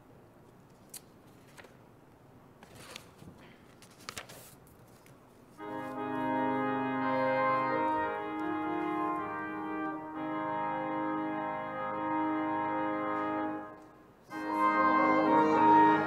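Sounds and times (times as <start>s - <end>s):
church organ chords: 5.6s - 16.0s.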